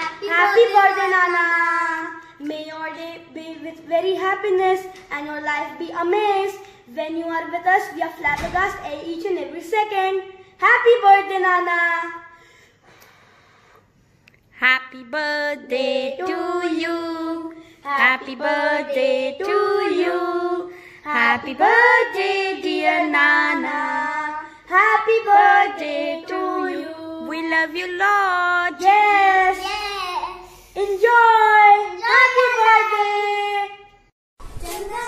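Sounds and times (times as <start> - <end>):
boys singing together: 15.3 - 27.3.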